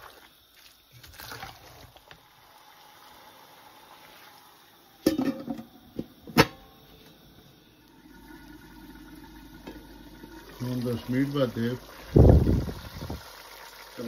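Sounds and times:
faint steady hiss: 0.0s - 14.0s
metal pot lid clattering: 5.0s - 5.7s.

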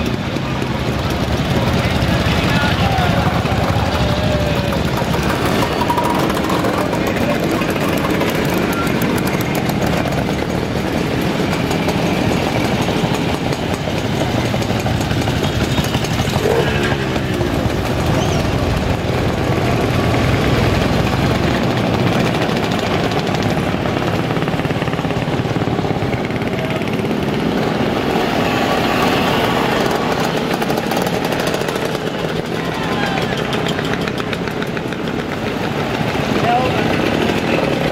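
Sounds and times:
motorcycle engines passing: 0.0s - 37.9s.

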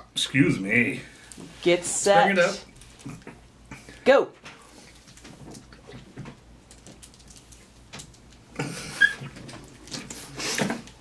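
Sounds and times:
plastic bottle squeak: 8.9s - 9.4s.

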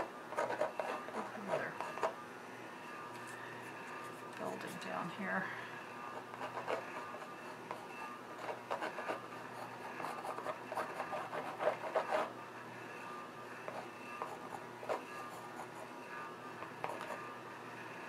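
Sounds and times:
pencil scratching on canvas: 0.0s - 2.2s, 6.1s - 12.3s, 16.6s - 17.3s.

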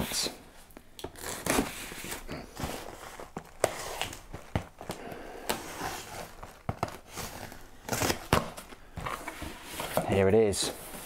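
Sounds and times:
utility knife slicing packing tape: 6.9s - 8.6s.

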